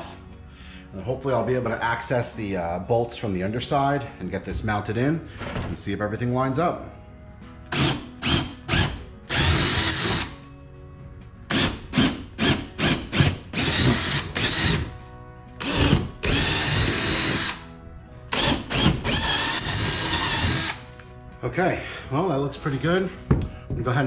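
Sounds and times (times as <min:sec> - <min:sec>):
cordless drill boring holes: 0:07.7 - 0:10.3, 0:11.5 - 0:14.9, 0:15.6 - 0:17.6, 0:18.3 - 0:20.8.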